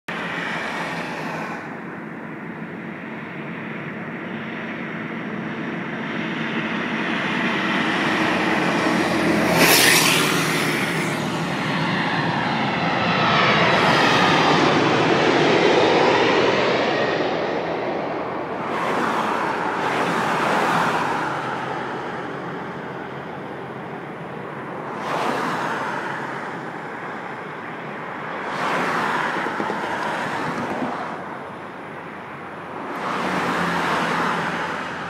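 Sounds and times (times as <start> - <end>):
jet airliner passing overhead: 0.1 - 35.0
truck passing with loud rush: 7.2 - 11.9.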